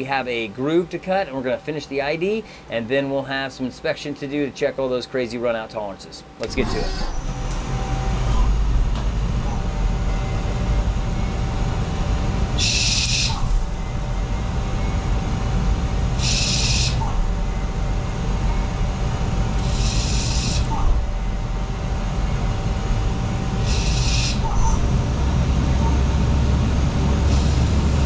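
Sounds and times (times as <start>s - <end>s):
faint machine whine: 0.0s - 28.0s
lathe machine hum: 6.4s - 28.0s.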